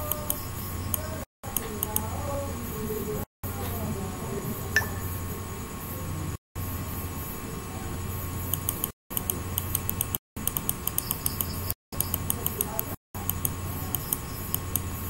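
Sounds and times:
mouse scroll wheel clicking: 0:00.0 - 0:02.1, 0:08.5 - 0:14.9
electrical hum and hiss: 0:00.0 - 0:15.0.

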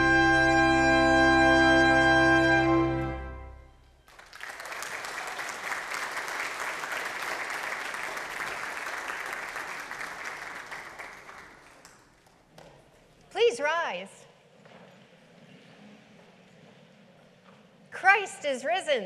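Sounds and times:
congregation applauding: 0:04.0 - 0:12.6.

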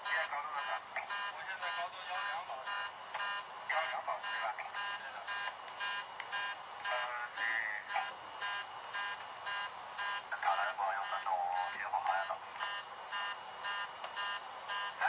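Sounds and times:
cockpit warning tone beeping: 0:00.0 - 0:15.0
crew voices: 0:03.7 - 0:08.2, 0:10.2 - 0:12.9.

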